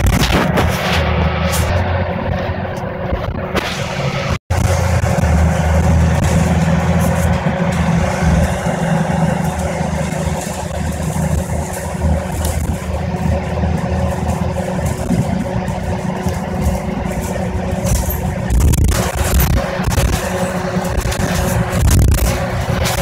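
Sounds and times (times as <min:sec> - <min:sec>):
bus engine and road noise: 0:00.0 - 0:23.0
small rattles: 0:06.2 - 0:23.0.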